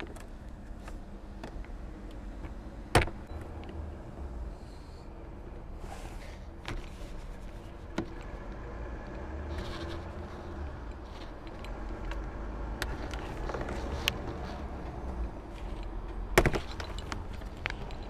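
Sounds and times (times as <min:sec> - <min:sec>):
plastic parts clicking and scraping: 0:06.2 - 0:18.0.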